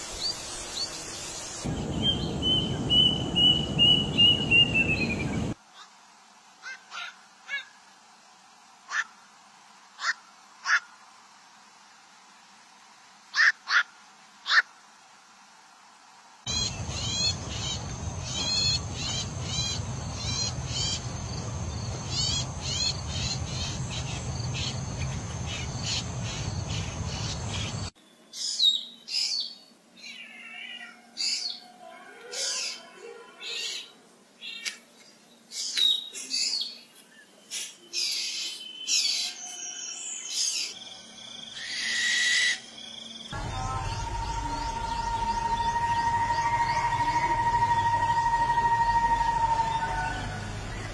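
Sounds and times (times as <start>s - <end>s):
drongo whistles and harsh calls: 41.5s - 42.7s
owl screeching: 41.6s - 42.7s
low rumble: 43.4s - 50.9s
shrike calling sharp notes: 43.4s - 50.9s.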